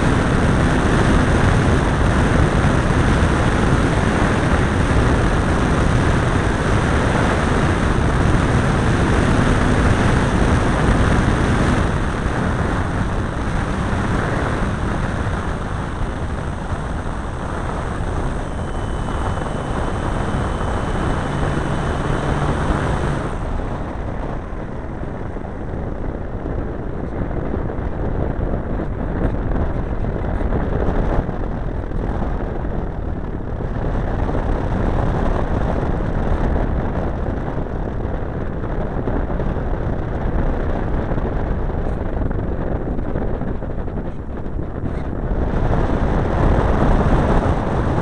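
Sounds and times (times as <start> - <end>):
wind rushing: 0.0 - 39.7
model airplane engine: 0.0 - 48.0.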